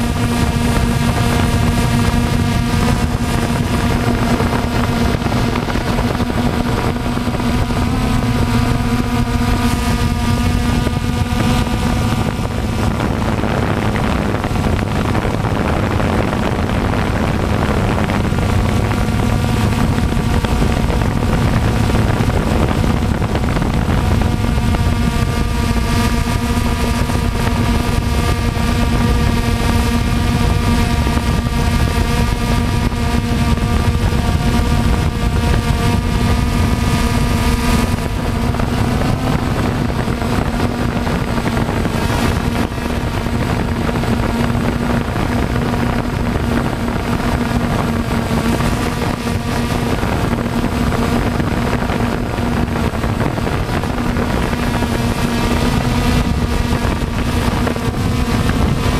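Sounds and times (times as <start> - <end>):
drone propellers buzzing: 0.0 - 58.9.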